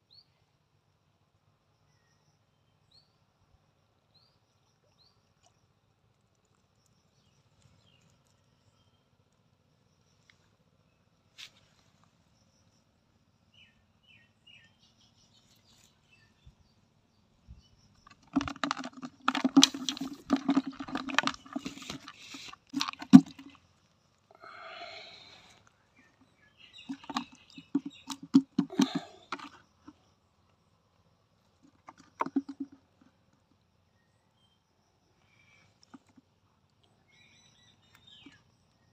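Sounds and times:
knocking and scraping plastic tub: 0:18.0 - 0:23.6, 0:26.8 - 0:29.6, 0:31.6 - 0:32.8.

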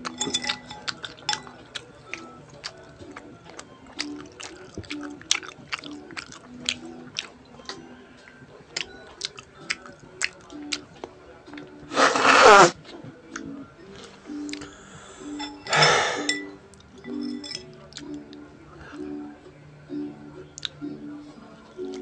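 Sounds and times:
close-miked chewing: 0:00.0 - 0:15.0, 0:17.7 - 0:19.1, 0:20.6 - 0:20.8, 0:21.8 - 0:22.0
quiet background music: 0:00.0 - 0:22.0.

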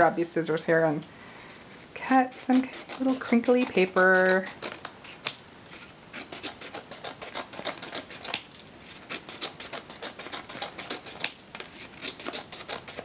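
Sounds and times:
scissors snipping cardstock: 0:02.3 - 0:05.4, 0:09.1 - 0:13.0.

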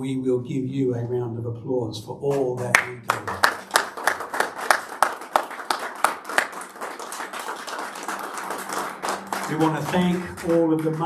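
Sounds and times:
people applauding: 0:02.6 - 0:11.0.

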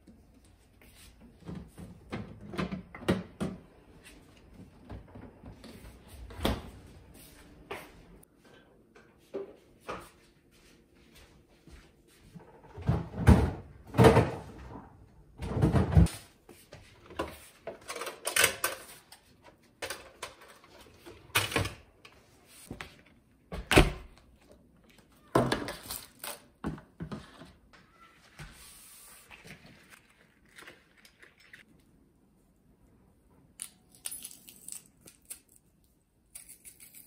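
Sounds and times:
kitchen knocks and clatters: 0:01.4 - 0:03.7, 0:12.4 - 0:16.2, 0:17.0 - 0:21.9, 0:25.2 - 0:27.6.

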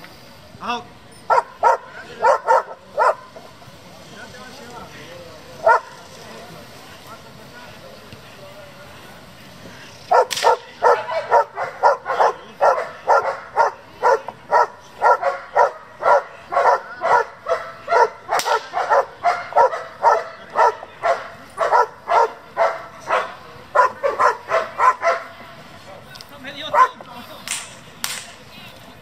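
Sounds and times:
dog barking rapidly: 0:01.3 - 0:03.3, 0:05.6 - 0:06.0, 0:10.1 - 0:25.3, 0:26.7 - 0:27.0
sharp crack: 0:10.2 - 0:10.8, 0:18.3 - 0:18.9, 0:27.3 - 0:28.4.

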